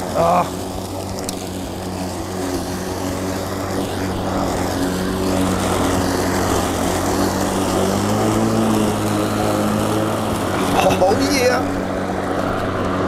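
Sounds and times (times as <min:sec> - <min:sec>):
electric lawn mower motor hum: 0:00.0 - 0:13.0.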